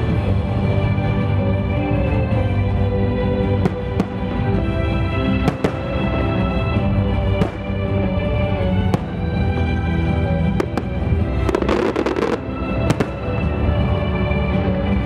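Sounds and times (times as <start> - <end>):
music: 0.0 - 15.0
fireworks crackling: 3.4 - 14.6
fireworks bangs: 5.3 - 6.2, 7.3 - 7.8, 10.5 - 13.6.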